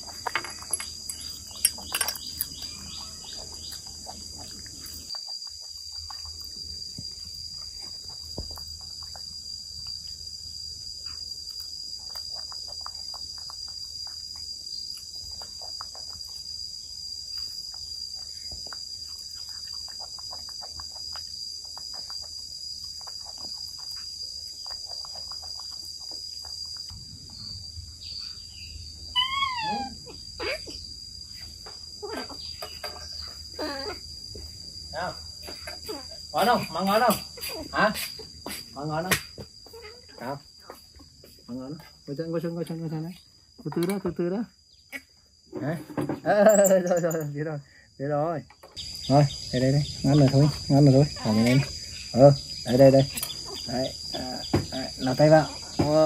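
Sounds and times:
faint clicks and taps of eating: 0.0 - 10.1, 11.1 - 16.6, 17.6 - 27.0
insects buzzing: 0.0 - 56.0.

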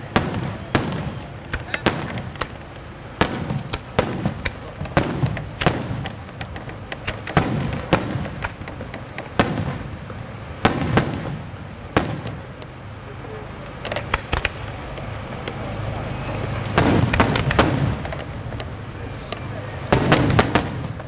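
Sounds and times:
firework shells bursting: 0.0 - 12.9, 13.6 - 21.0.

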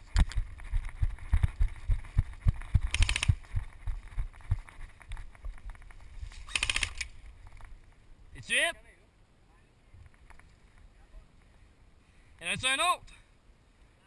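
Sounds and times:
heavy running footsteps: 0.0 - 5.9
airsoft gun firing bursts: 2.8 - 3.4, 6.5 - 7.1.

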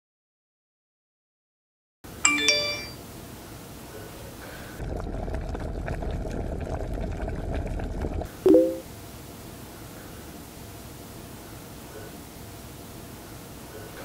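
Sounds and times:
low electronic chime: 2.3 - 3.0
phone notification chime: 2.3 - 3.0, 8.5 - 8.8
water bubbling in a saucepan: 4.6 - 8.3.

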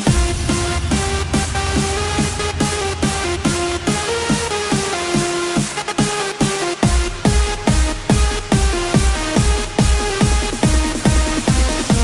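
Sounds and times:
synth notes sliding down: 0.0 - 6.4
steady synth bass: 0.0 - 12.0.

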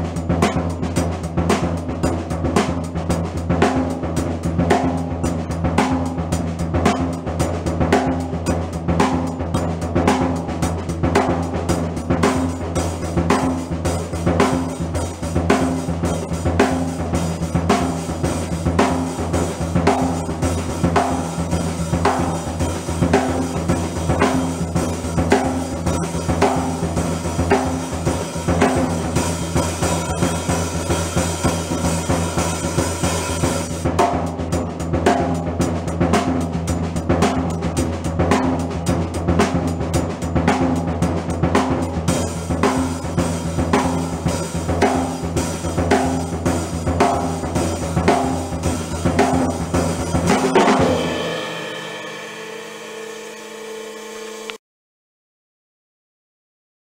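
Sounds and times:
snare drum cracking: 0.0 - 1.7, 41.6 - 52.4
drum kit playing a beat: 0.0 - 54.4.

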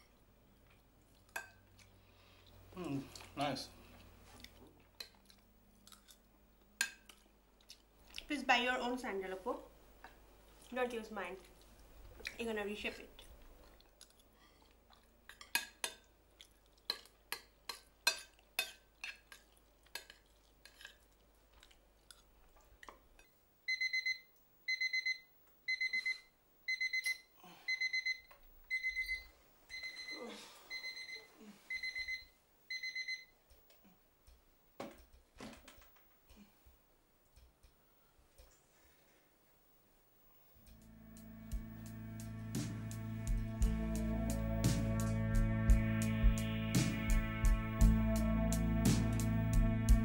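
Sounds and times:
electronic alarm beeping: 23.7 - 33.3.

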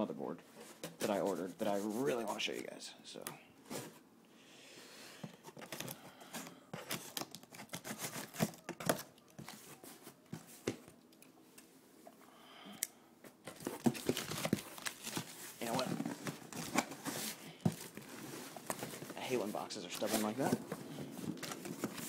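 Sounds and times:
cardboard scraping and tearing: 6.8 - 9.6, 13.5 - 22.0.

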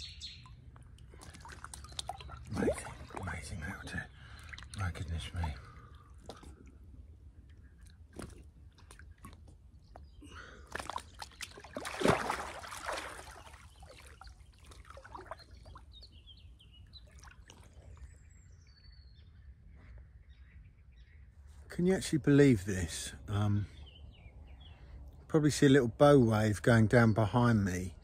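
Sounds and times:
water sloshing and dripping: 0.4 - 18.2
loud water splash: 11.6 - 13.6.

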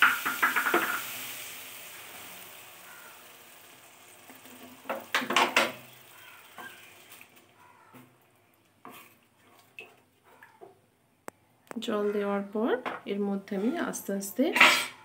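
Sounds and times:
water crackling in hot pan: 0.0 - 10.6
wooden spatula scraping pan: 8.8 - 9.7.

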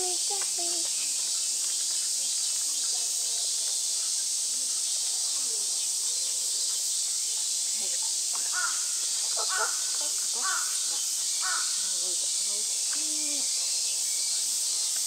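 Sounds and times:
steady high hiss: 0.0 - 15.0
crow cawing: 8.5 - 11.9.

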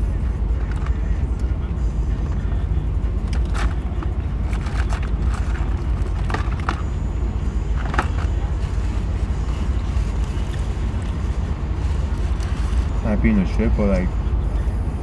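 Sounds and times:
low rumble in car cabin: 0.0 - 15.0.

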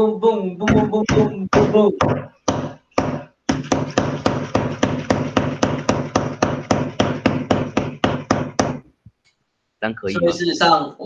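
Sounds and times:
knocking on a hard surface: 0.7 - 8.8.

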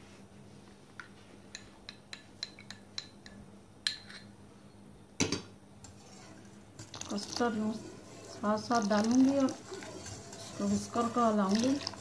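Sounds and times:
whisk clinking against metal pan: 7.1 - 12.0.

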